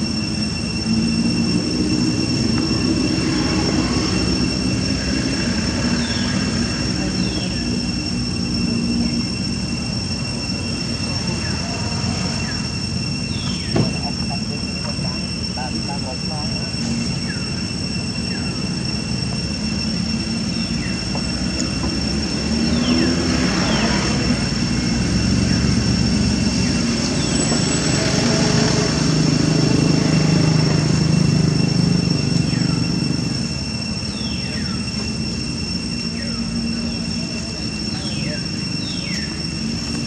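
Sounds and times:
high insect drone: 0.0 - 40.0
passing motor vehicle rumble: 0.0 - 40.0
falling bird chirps: 12.3 - 14.4.

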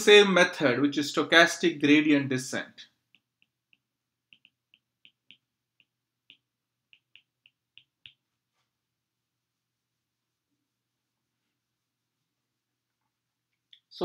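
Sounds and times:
stylus tapping glass screen: 3.0 - 8.4.

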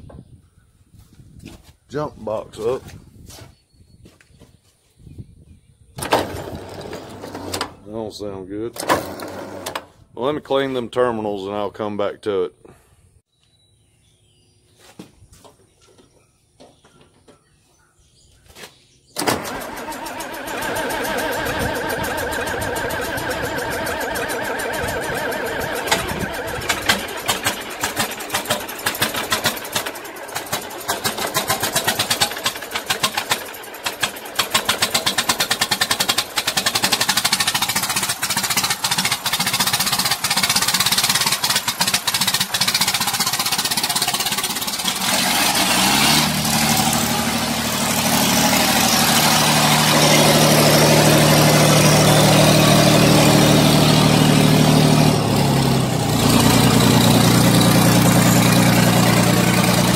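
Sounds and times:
diesel engine starting and running: 6.0 - 10.1, 19.2 - 59.9.

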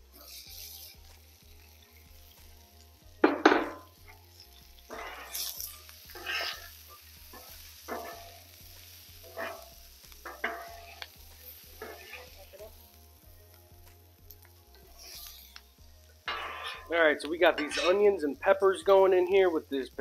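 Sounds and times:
vegetables sizzling on a griddle: 0.0 - 20.0
metal spatulas scraping griddle: 0.1 - 1.2, 3.2 - 8.5, 9.2 - 12.6, 14.7 - 15.6, 16.3 - 18.2.

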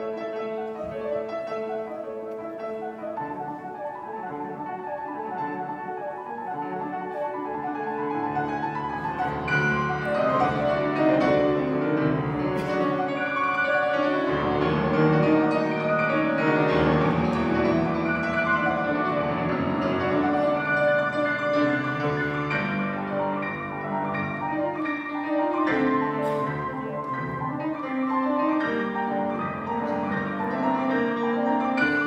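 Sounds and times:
grand piano playing: 0.0 - 32.0.

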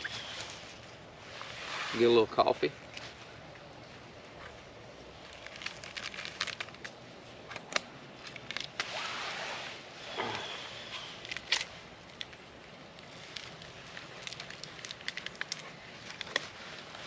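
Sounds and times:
coffee packet crinkling: 5.2 - 7.0, 11.2 - 12.4, 13.0 - 17.0.

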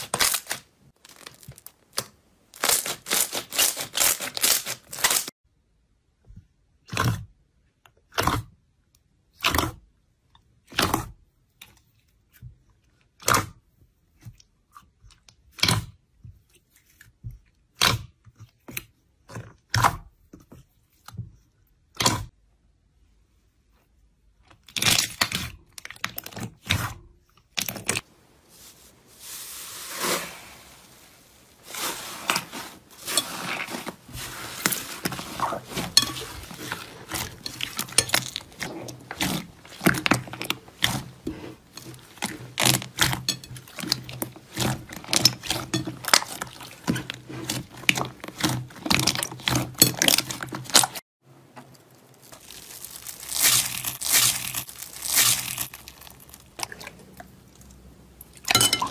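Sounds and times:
beaded slime crackling: 0.0 - 5.3, 28.5 - 51.0, 51.7 - 56.7
slime squelching: 0.0 - 5.3, 24.6 - 58.9.

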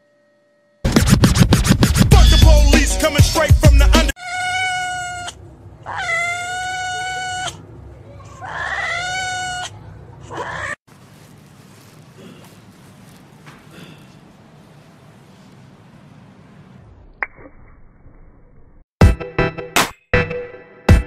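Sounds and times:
cat meowing: 4.2 - 7.6, 8.3 - 9.7, 10.3 - 10.8.

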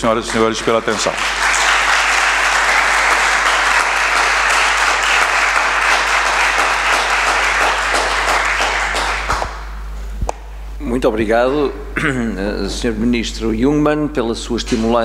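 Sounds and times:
audience applauding: 0.0 - 9.8.

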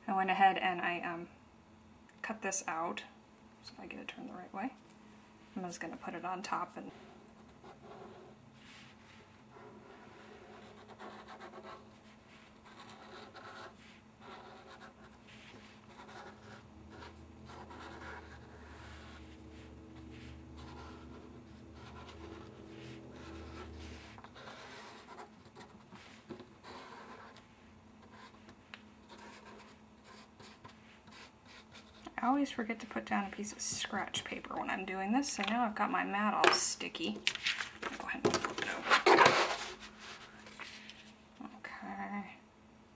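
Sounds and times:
glue pen scratching on paper: 9.5 - 27.4.

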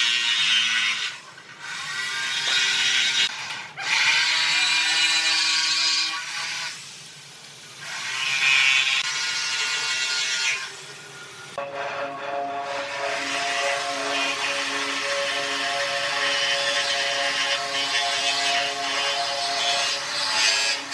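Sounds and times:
power tool running: 7.8 - 10.9, 11.6 - 20.9.

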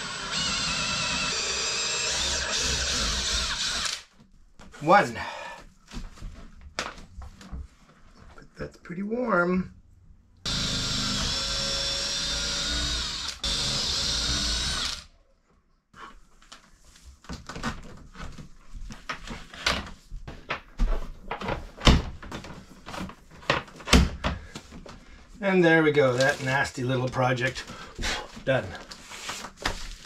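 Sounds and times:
power drill boring wood: 0.0 - 4.1, 10.5 - 15.1
rustling and scraping: 16.1 - 25.4, 27.5 - 30.0.

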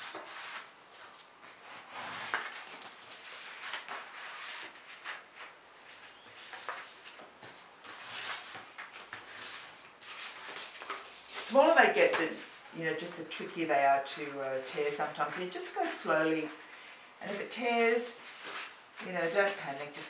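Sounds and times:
paper rustling and tearing: 6.0 - 12.7.

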